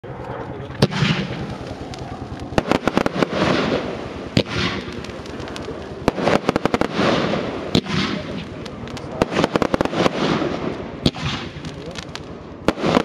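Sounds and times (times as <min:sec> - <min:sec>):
fireworks shot pops: 0:00.8 - 0:13.0
hissing of bursting stars: 0:00.8 - 0:13.0.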